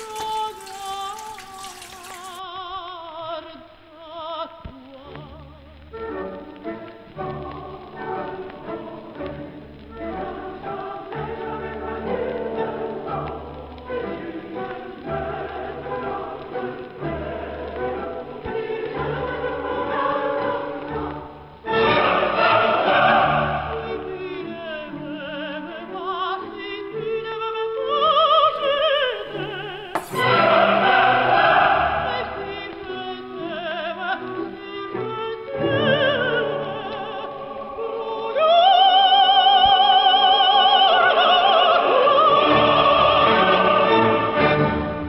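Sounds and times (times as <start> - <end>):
orchestra and choir: 6.0 - 45.0
operatic voices singing with vibrato: 10.2 - 21.1, 21.7 - 25.8, 27.8 - 45.0.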